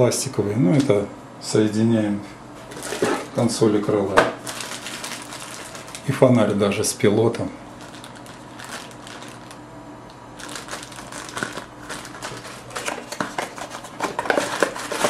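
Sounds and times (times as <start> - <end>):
plastic bag crinkling: 2.7 - 3.4, 4.3 - 6.2, 7.7 - 9.6, 10.4 - 15.0.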